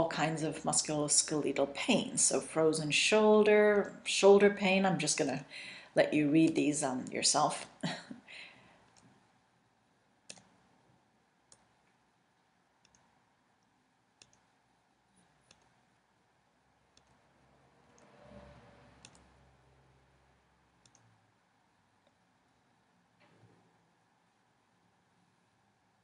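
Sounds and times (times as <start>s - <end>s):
computer mouse clicks: 10.3s - 10.6s, 11.5s - 11.9s, 12.8s - 14.5s, 15.1s - 15.8s, 16.9s - 17.2s, 19.0s - 19.3s, 20.8s - 21.1s.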